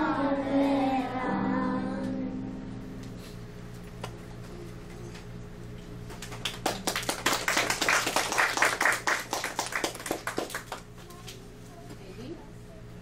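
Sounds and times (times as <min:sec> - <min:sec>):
small audience clapping: 0:06.0 - 0:11.4.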